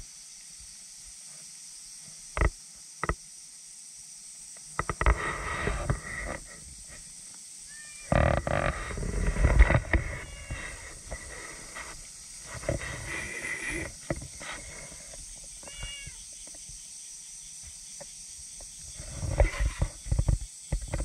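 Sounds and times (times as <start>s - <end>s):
fur rubbing on microphone: 5.0s - 7.0s, 8.0s - 15.2s, 19.0s - 20.0s
cats meowing: 7.7s - 8.1s, 10.0s - 11.0s, 15.6s - 16.3s.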